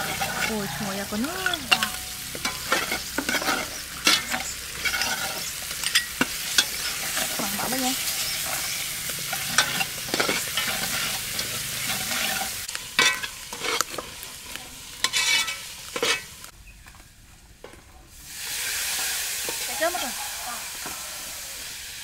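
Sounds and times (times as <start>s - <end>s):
metal ladle scraping pot: 0.0s - 16.5s
paste sizzling in oil: 0.0s - 16.5s, 18.1s - 22.0s.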